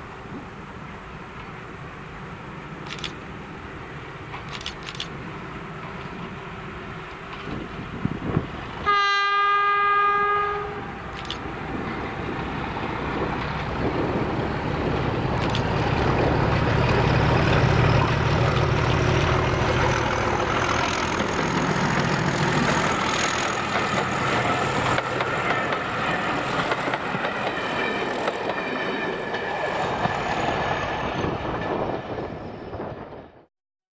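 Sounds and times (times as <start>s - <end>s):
diesel locomotive engine drone: 0.0s - 33.5s
wheels clattering over rail joints: 11.2s - 30.2s.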